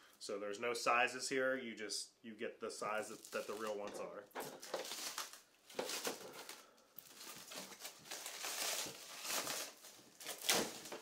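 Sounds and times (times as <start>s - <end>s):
plastic wrap crinkling: 3.0s - 11.0s.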